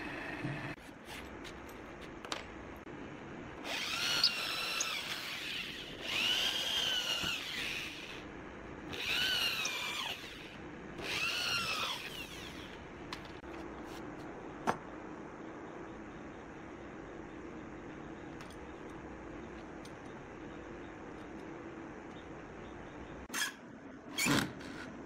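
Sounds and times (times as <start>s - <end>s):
electric drill bursts: 3.6s - 8.2s, 8.9s - 12.8s.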